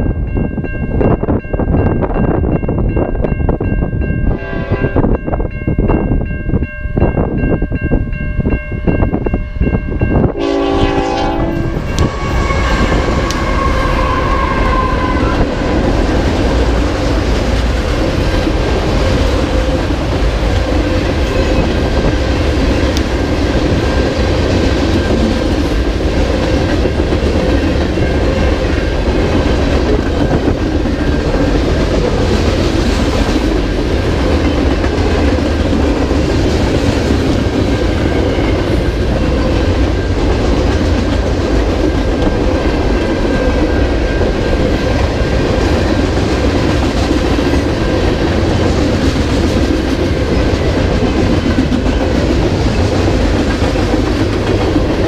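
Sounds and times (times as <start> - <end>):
level crossing warning bell: 0.0 - 35.3
train wheels rumbling on rails: 0.0 - 55.0
train horn: 4.3 - 5.2, 10.3 - 15.8.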